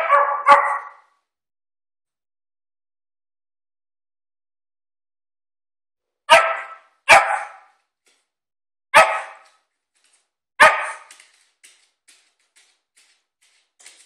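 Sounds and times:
small dog barking: 0:00.0 - 0:01.1, 0:06.3 - 0:07.8, 0:08.9 - 0:09.6, 0:10.6 - 0:11.1.

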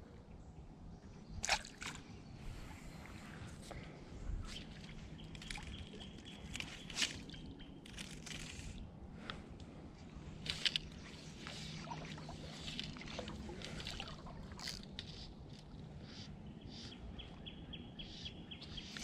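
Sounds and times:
fishing line rustling: 0:04.4 - 0:15.9.

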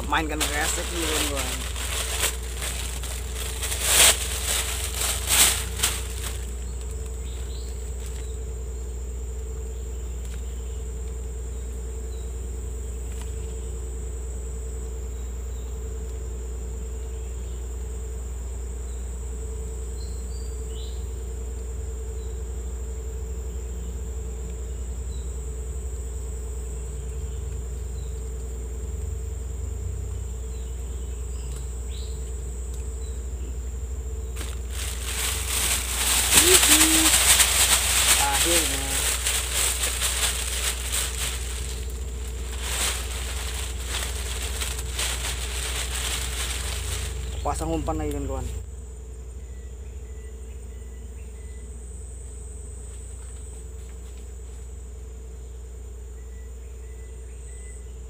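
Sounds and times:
plastic bag crinkling: 0:00.0 - 0:08.3, 0:34.4 - 0:48.6
insects droning: 0:00.0 - 0:58.0.

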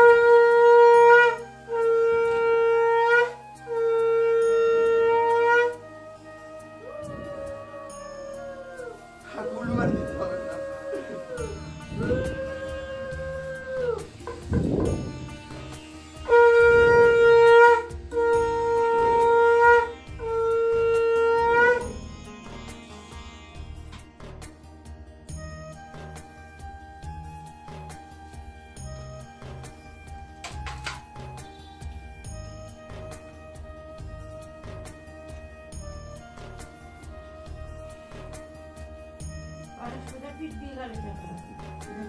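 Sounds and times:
conch shell blasts: 0:00.0 - 0:22.1
faint wavering sliding note: 0:03.8 - 0:19.3.

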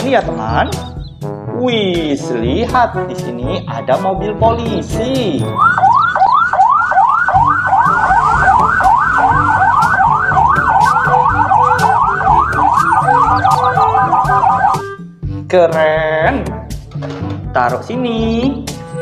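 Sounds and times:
toy siren wailing: 0:05.5 - 0:15.0.

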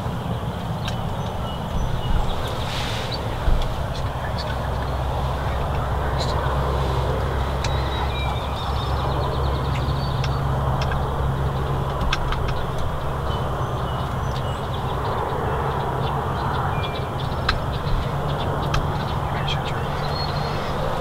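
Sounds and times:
constant hiss: 0:00.0 - 0:13.6
low outdoor rumble: 0:00.0 - 0:21.0
songbird chirps: 0:00.0 - 0:21.0.

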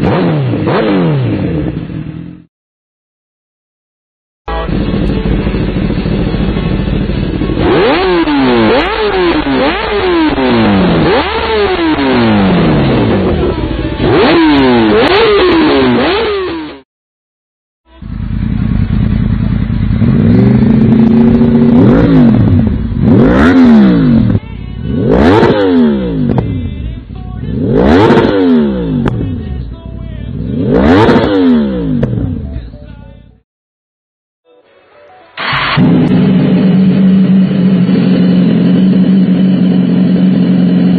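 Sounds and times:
superbike revving in pulls: 0:00.0 - 0:02.4, 0:04.6 - 0:16.8, 0:18.0 - 0:26.7, 0:27.5 - 0:29.4, 0:30.4 - 0:32.4, 0:35.4 - 0:40.9
motorcycle engine revving in blips: 0:00.0 - 0:02.5, 0:04.5 - 0:16.8, 0:17.9 - 0:32.6, 0:35.4 - 0:40.9.

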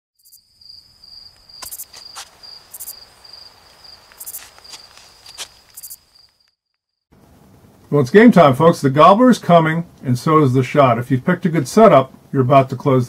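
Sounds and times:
insects chirping: 0:00.2 - 0:07.0
sharp clicks: 0:01.4 - 0:01.9.

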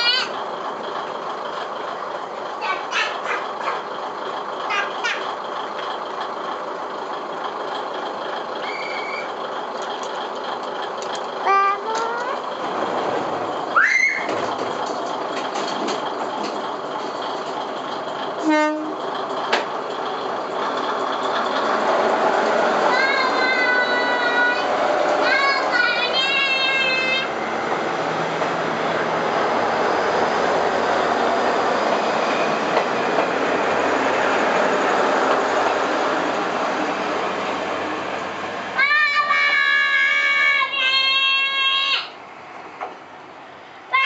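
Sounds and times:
diesel railcar running: 0:00.0 - 0:44.0
train horn blast: 0:11.5 - 0:12.4, 0:18.4 - 0:19.0.

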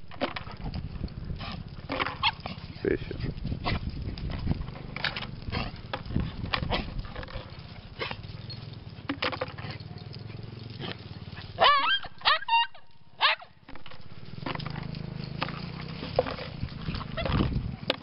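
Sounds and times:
dogs scrabbling on leaves: 0:00.0 - 0:18.0
high-pitched dog yelps: 0:02.2 - 0:02.5, 0:11.4 - 0:13.6, 0:17.0 - 0:17.4.

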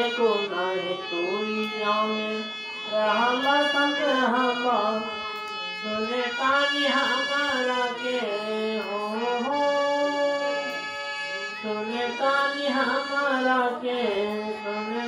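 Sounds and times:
men singing devotional song: 0:00.0 - 0:10.7
instrumental drone: 0:00.0 - 0:15.0.

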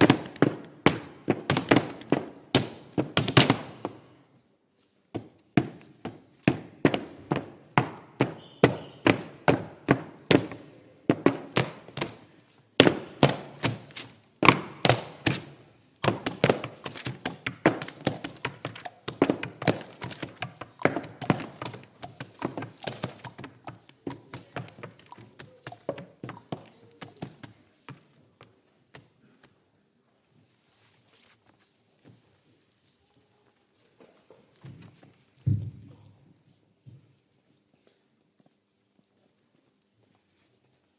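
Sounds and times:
books struck as percussion: 0:00.0 - 0:04.0, 0:05.2 - 0:27.6.

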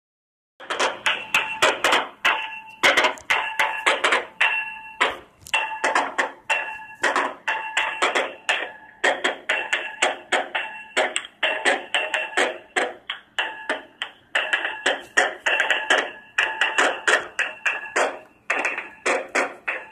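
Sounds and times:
hard object struck ringing: 0:00.6 - 0:19.9.

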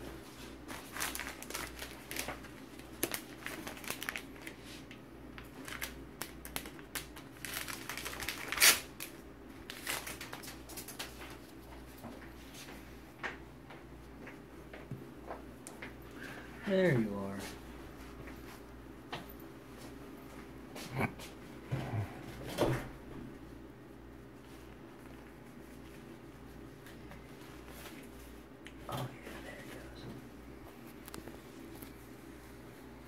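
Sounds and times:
low steady hum: 0:00.0 - 0:33.0.

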